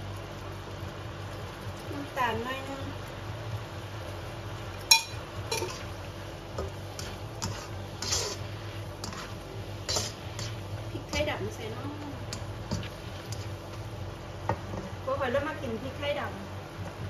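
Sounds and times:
steady low hum: 0.0s - 17.0s
spatula scraping a wok: 4.9s - 13.9s.

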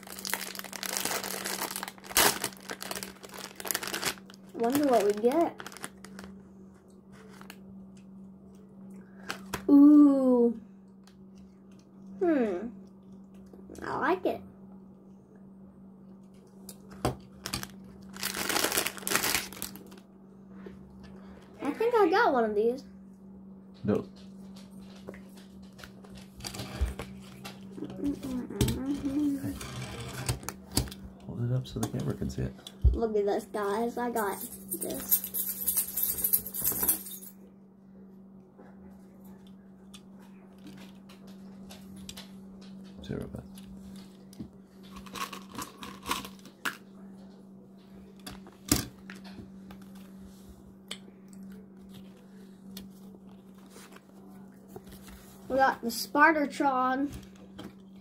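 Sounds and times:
plastic wrapper crinkling: 0.0s - 6.4s, 17.3s - 20.0s.

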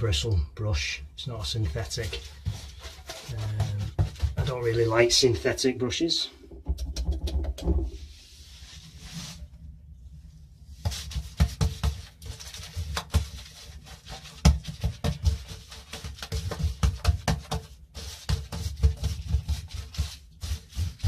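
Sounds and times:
paintbrush strokes on wall: 1.4s - 5.7s, 7.9s - 21.0s.

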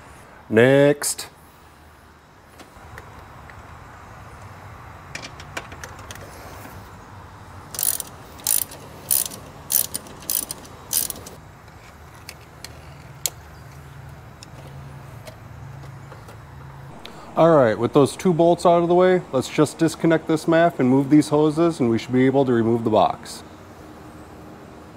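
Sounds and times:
ratchet wrench clicking: 7.7s - 11.4s.

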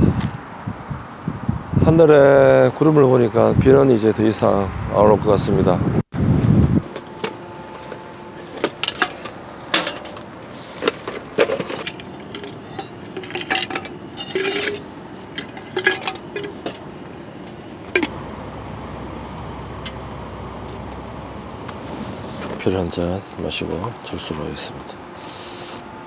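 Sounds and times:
tableware clinks and knocks: 10.8s - 16.9s.

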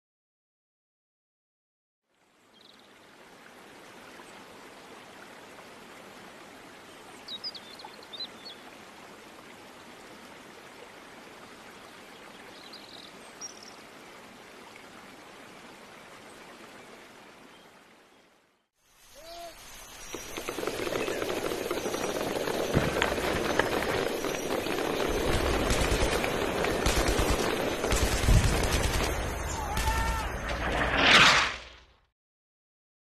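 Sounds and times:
outdoor hiss: 18.7s - 29.0s.

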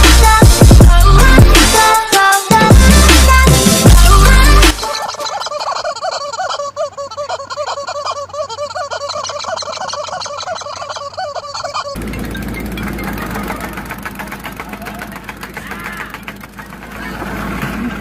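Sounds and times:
tamping rammer engine running: 12.0s - 18.0s.

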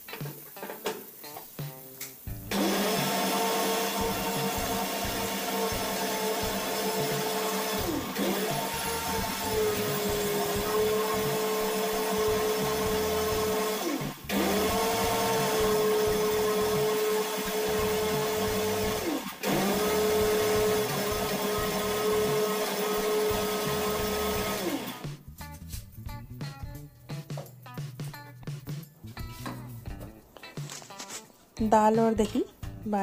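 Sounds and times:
background music: 0.0s - 33.0s
mixer grinder motor grinding: 2.5s - 25.0s.

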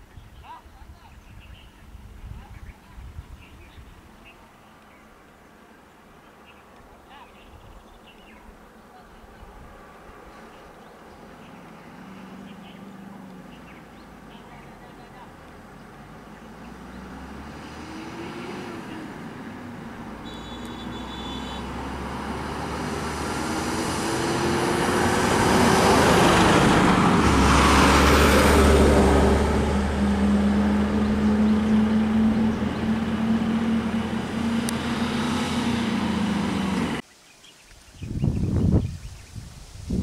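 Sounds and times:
vehicle passing close: 9.7s - 37.0s.

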